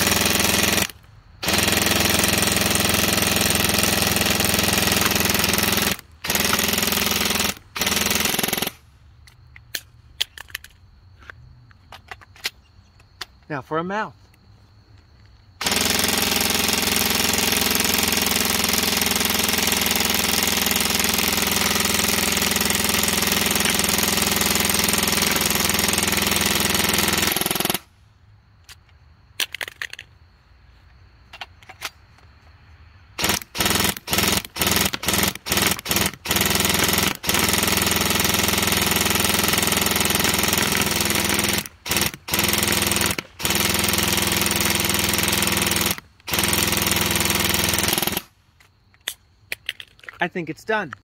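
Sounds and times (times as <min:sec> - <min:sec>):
airsoft rifle firing: 0:00.0 - 0:08.8, 0:15.6 - 0:27.9, 0:33.2 - 0:48.3.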